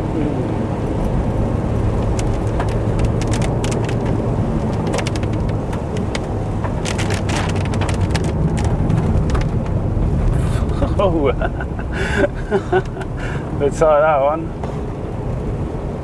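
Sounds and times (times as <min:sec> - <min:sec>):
engine and tyre rumble: 0:00.0 - 0:16.0
raindrops ticking on camera: 0:01.0 - 0:13.4.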